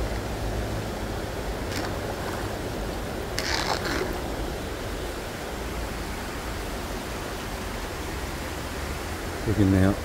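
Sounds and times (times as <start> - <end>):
short splash: 3.4 - 4.3
umbrella sweeping through water: 3.4 - 4.4.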